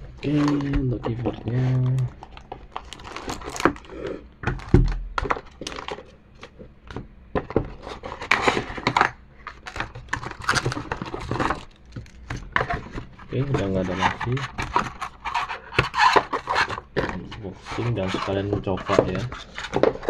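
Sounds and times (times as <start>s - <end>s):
packaging crinkling: 1.3s - 6.6s.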